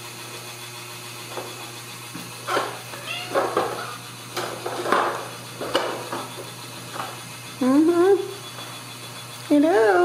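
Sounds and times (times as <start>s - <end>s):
kittens mewing: 2.7s - 4.1s.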